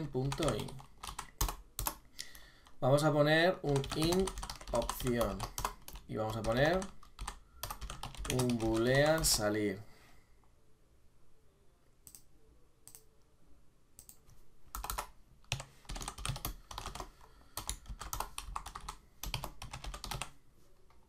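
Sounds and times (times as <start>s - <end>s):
computer keyboard typing: 0.1s - 2.0s, 3.6s - 9.4s, 14.0s - 20.3s.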